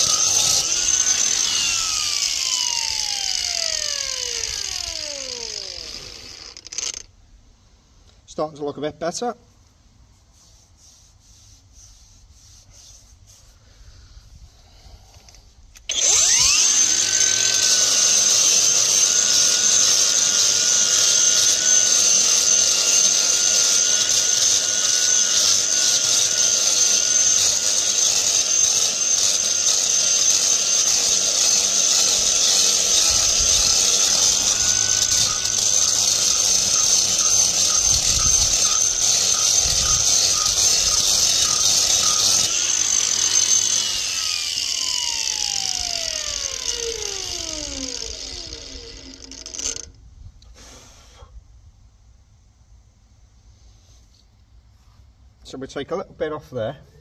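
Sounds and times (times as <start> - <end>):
angle grinder grinding concrete: 0.0 - 7.0, 15.9 - 49.9.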